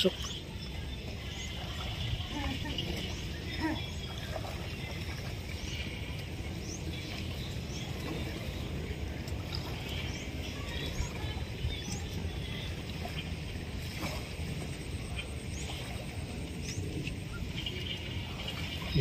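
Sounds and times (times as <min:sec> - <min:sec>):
small birds chirping: 0:14.7 - 0:19.0.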